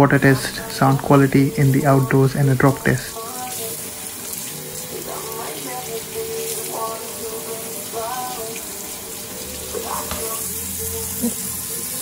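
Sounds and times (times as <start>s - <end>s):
music from speaker: 0.0s - 12.0s
tap water splashing: 9.6s - 10.4s.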